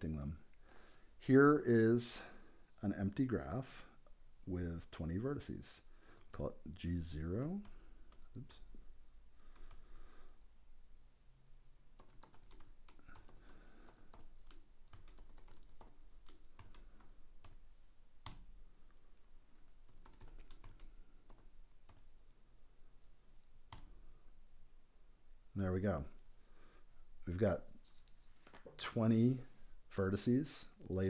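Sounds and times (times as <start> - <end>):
typing on computer keyboard: 9.5 - 9.8, 12.0 - 17.6, 18.2 - 18.5, 19.9 - 22.1.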